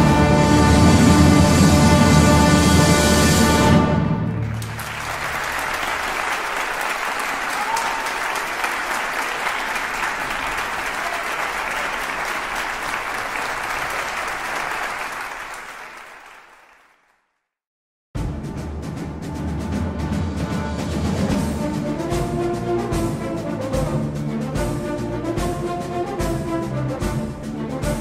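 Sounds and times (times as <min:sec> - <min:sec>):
crowd applauding: 0:04.3 - 0:17.3.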